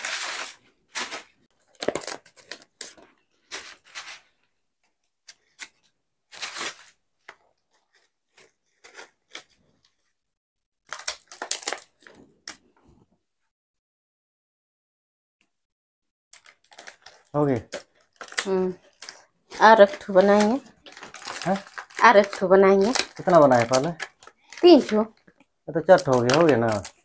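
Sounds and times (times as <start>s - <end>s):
dry leaves crinkling and rustling: 19.6s - 24.1s.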